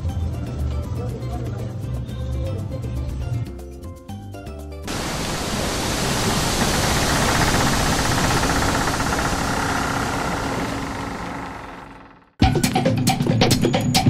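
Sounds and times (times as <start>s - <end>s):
steady rushing noise: 4.9s - 12.2s.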